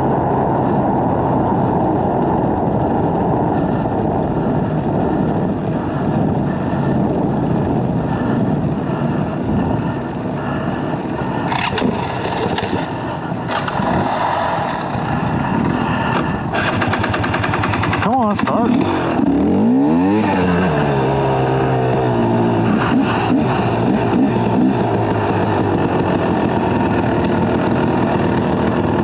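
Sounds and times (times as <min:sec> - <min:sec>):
road noise: 0:00.0 - 0:29.0
wind rumble on microphone: 0:00.0 - 0:29.0
dirt bike engine running: 0:00.6 - 0:29.0.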